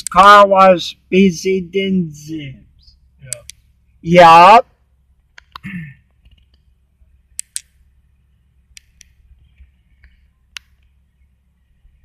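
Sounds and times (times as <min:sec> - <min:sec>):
car engine rumbling: 0:00.0 - 0:12.0
sharp clicks: 0:03.2 - 0:03.6, 0:05.2 - 0:06.7, 0:07.3 - 0:07.8, 0:08.7 - 0:10.9.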